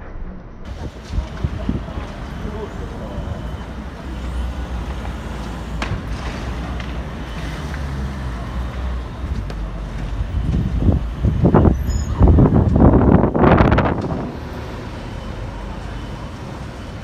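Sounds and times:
low rumble: 0.0 - 2.2
wind buffeting microphone: 0.6 - 2.4, 9.1 - 14.8.

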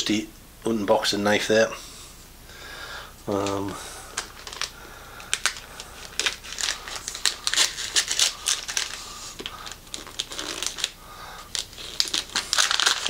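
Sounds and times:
wrapping paper crinkling and tearing: 3.3 - 13.0.

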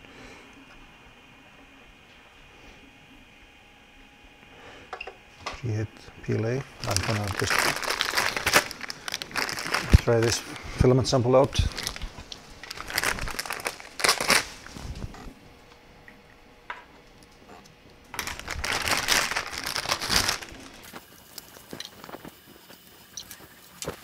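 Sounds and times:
plastic packaging crinkling: 6.3 - 10.7, 11.4 - 15.2, 18.1 - 22.3.

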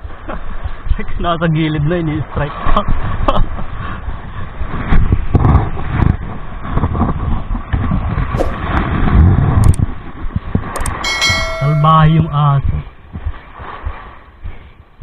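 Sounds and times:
wind buffeting microphone: 0.0 - 15.0
sharp clicks: 9.6 - 9.8, 10.8 - 11.2.

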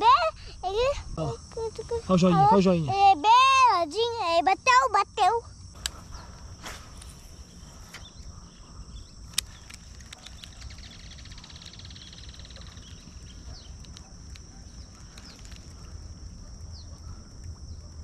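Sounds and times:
insects chirring: 0.0 - 18.0
sharp click: 5.8 - 6.0, 9.3 - 11.8.

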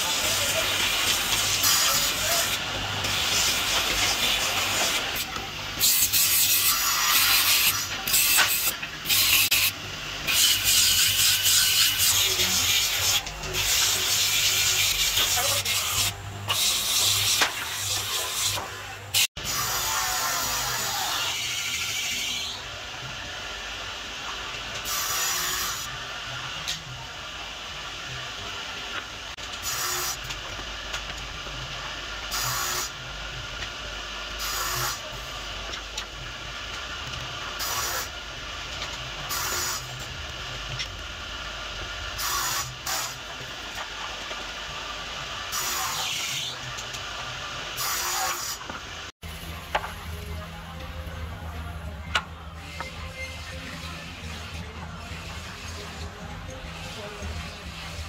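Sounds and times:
sandpaper scraping wood: 0.0 - 18.7.

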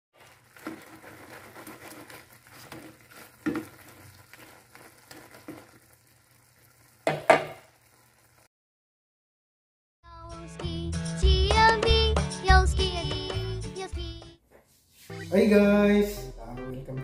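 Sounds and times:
spatula scraping a pan: 0.2 - 6.0
shrimp sizzling in a wok: 0.2 - 8.5.

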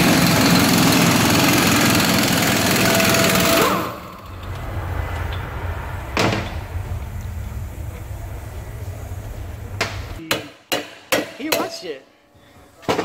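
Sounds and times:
low hum: 0.0 - 10.2.

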